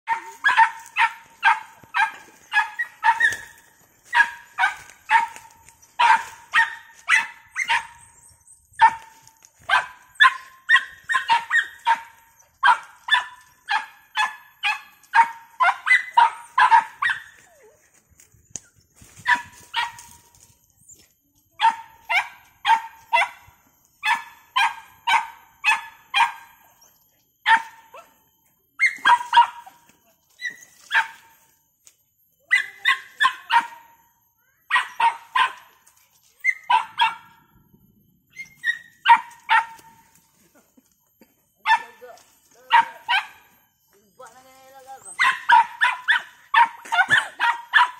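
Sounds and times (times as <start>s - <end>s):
dog barking: 0.1s - 17.8s, 19.2s - 20.2s, 21.6s - 28.2s, 28.8s - 31.4s, 32.5s - 34.1s, 34.7s - 35.8s, 36.4s - 37.5s, 38.4s - 40.1s, 41.6s - 43.6s, 45.0s - 47.9s.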